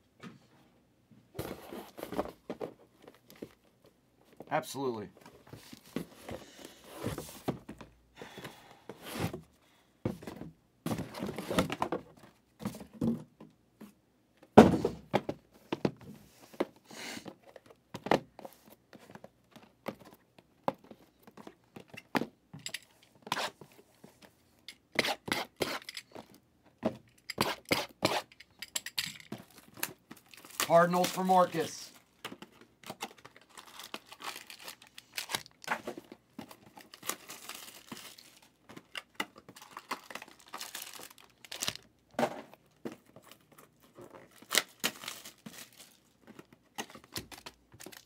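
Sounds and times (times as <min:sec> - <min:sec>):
cardboard boxes knocking and thudding: 0:05.5 - 0:16.8, 0:42.1 - 0:43.4.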